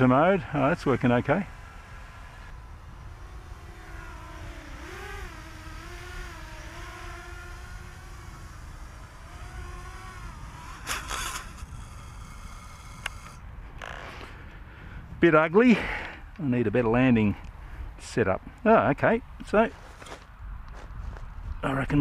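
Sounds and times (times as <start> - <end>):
quadcopter motors droning: 0.0 - 15.2.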